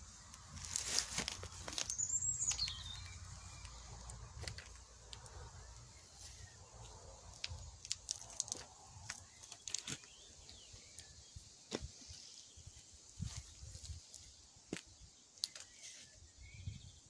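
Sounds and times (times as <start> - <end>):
footsteps on gritty paving: 0.6 - 5.3.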